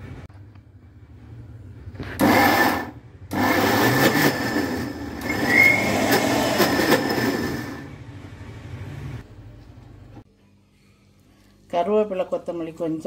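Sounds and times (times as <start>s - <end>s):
electric mixer grinder running: 2.2s - 7.9s.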